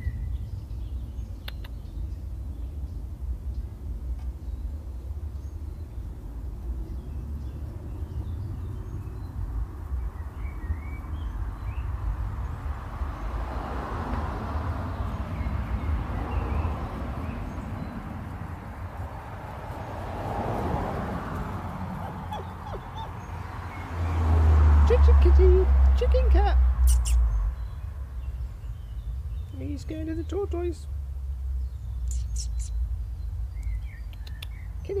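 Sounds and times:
constant low rumble: 0.0s - 13.1s
small birds chirping: 0.0s - 35.0s.

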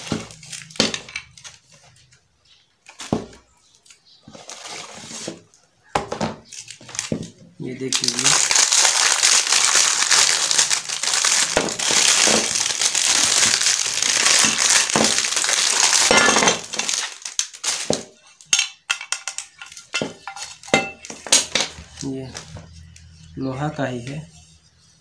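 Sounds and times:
plastic wrap crinkling: 0.0s - 2.0s, 6.4s - 18.6s.

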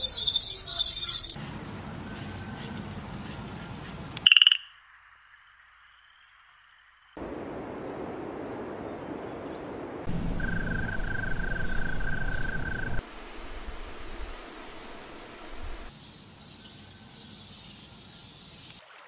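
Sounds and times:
cricket chirping: 4.2s - 7.5s, 10.1s - 15.9s
continuous high trill: 10.1s - 13.3s.

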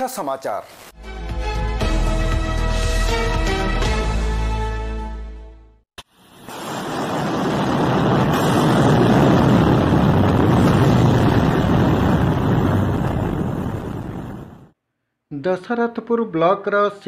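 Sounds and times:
rushing noise effect: 6.3s - 14.7s.

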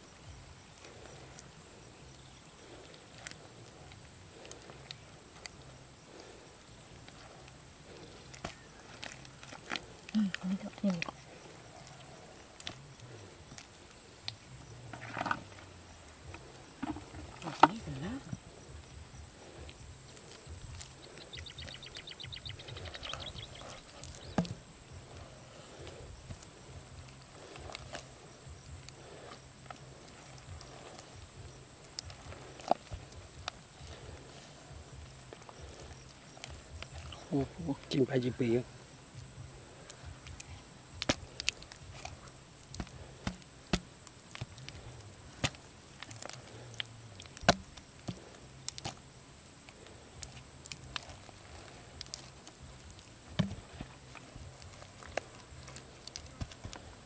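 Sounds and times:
hands scraping dry mud: 0.8s - 57.0s
mud clod cracking: 7.0s - 18.4s, 22.6s - 28.2s, 39.2s - 57.0s
digging tool chopping dried mud: 22.8s - 24.6s, 41.0s - 49.0s, 50.2s - 57.0s.

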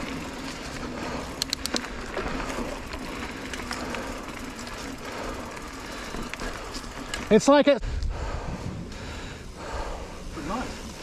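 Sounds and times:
sharp clicks and rattles: 0.0s - 7.5s
bike tyres rushing on dirt: 0.0s - 11.0s.

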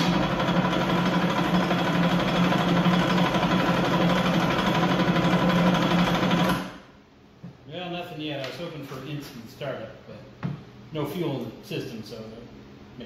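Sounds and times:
electric starter cranking engine: 0.0s - 6.9s.

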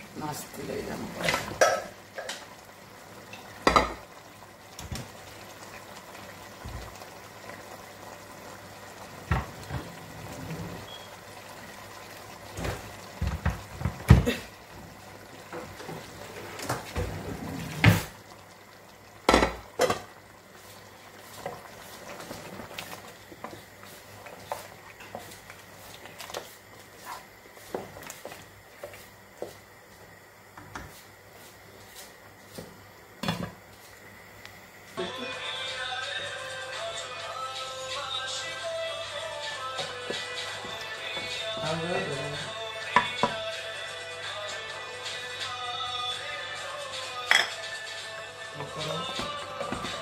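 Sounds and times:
faint steady simmer: 0.0s - 50.0s
wooden spoon stirring in a pot: 3.3s - 32.8s, 39.1s - 43.4s.

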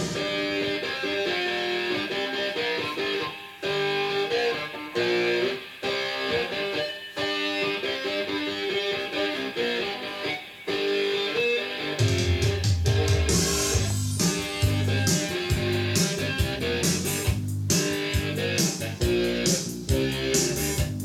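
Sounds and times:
guitar music from cassette: 0.0s - 21.0s
deep bass: 13.8s - 21.0s.

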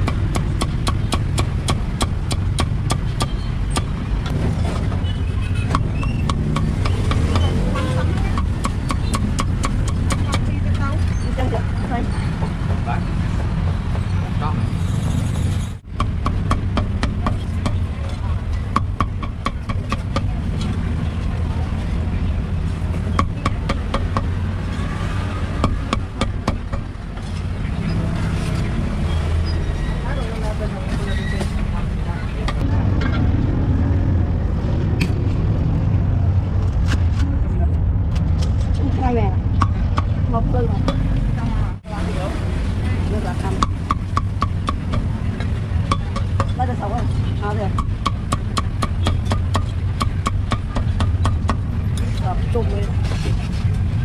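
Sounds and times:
street traffic rumble: 0.0s - 54.0s
cleaver chopping on wooden block: 5.7s - 7.5s, 8.2s - 10.5s, 16.0s - 17.8s, 47.7s - 51.6s.

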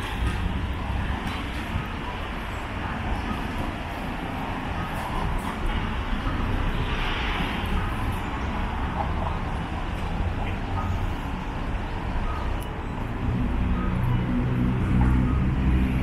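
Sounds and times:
heavy vehicle engine drone: 0.0s - 16.0s
rumble of passing vehicles: 0.0s - 16.0s.

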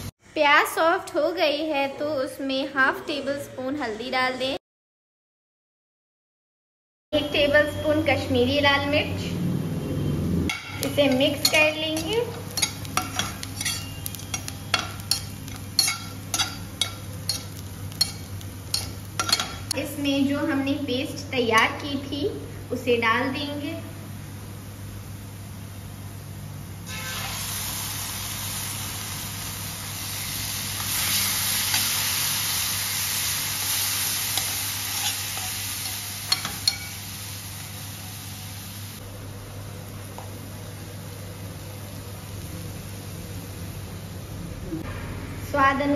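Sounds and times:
light sizzle of frying: 10.0s - 44.7s
metal spatula scraping a pan: 10.5s - 19.7s, 26.9s - 27.4s.

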